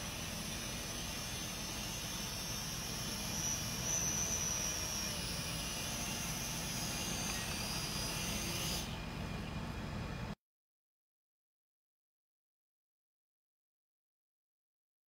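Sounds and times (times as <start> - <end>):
toy quadcopter motors whirring: 0.0 - 9.0.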